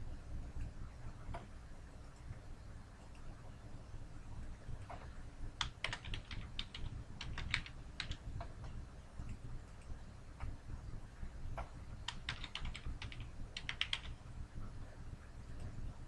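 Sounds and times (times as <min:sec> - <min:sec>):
faint low hum: 0:00.0 - 0:16.0
computer keyboard typing: 0:05.6 - 0:08.6, 0:11.6 - 0:14.2.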